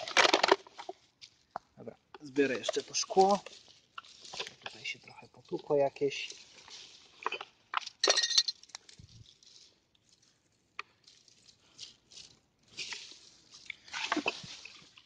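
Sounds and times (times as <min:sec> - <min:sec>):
leaves rustling: 0:02.2 - 0:07.7, 0:08.6 - 0:10.5
broken glass clinking: 0:08.0 - 0:08.6.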